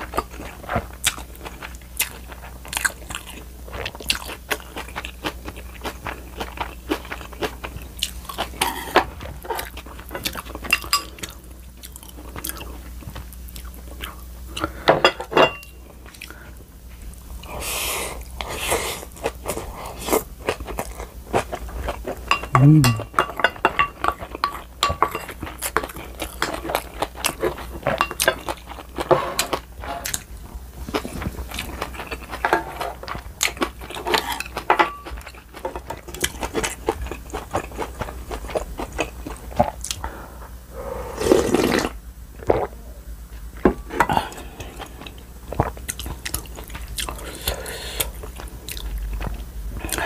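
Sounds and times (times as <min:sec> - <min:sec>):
chewing and crunching food: 0:00.0 - 0:50.0
utensils clinking on ceramic bowls: 0:10.2 - 0:11.3, 0:14.9 - 0:15.8, 0:22.2 - 0:25.5
loud breathy sound: 0:40.0 - 0:41.4.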